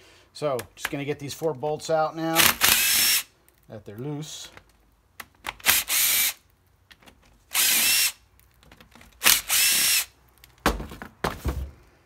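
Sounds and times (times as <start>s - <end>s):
power ratchet whirring: 2.4s - 3.3s, 5.6s - 6.4s, 7.5s - 8.2s, 9.2s - 10.1s.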